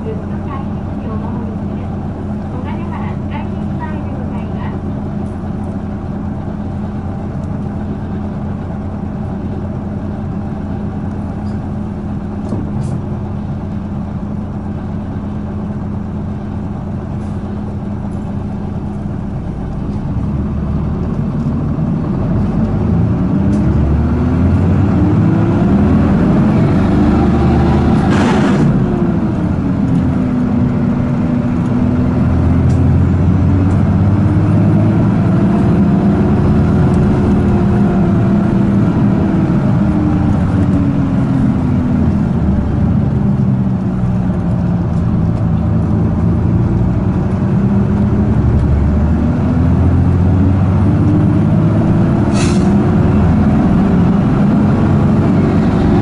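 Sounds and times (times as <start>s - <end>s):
bus diesel engine revving: 0.0s - 56.0s
short hiss: 52.3s - 52.7s.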